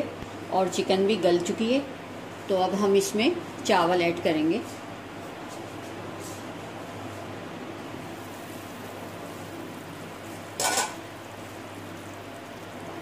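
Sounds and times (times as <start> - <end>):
stock simmering in a pot: 7.7 - 13.0
glass lid clattering: 10.6 - 11.0.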